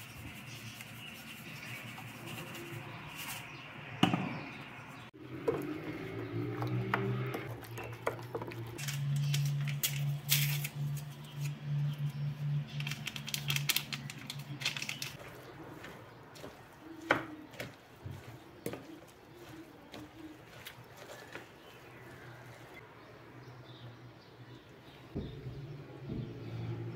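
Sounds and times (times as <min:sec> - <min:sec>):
spoon stirring wet batter: 0:15.0 - 0:22.8.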